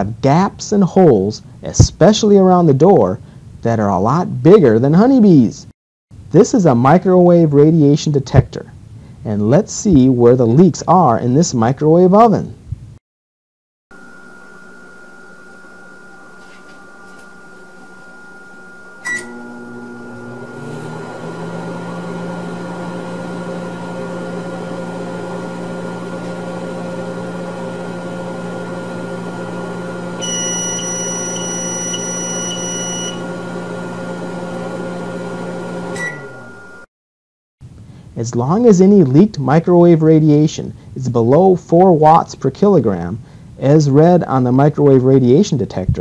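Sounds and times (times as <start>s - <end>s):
high pulsing tone: 13.9s - 20.8s, 30.2s - 33.3s, 36.0s - 36.9s
microwave running hum: 13.9s - 36.9s
microwave short beep: 14.0s - 20.9s, 30.1s - 33.5s, 35.8s - 36.9s
microwave click: 19.0s - 21.1s.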